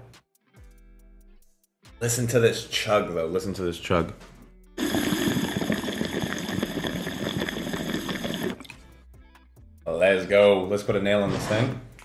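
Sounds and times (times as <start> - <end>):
water bubbling through a pipe: 4.8 - 8.8.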